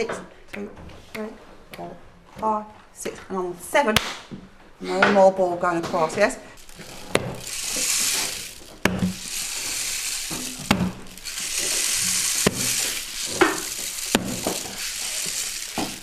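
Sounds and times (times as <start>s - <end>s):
rainstick hissing pours: 6.6s - 16.0s
rainstick knock: 6.6s - 16.0s.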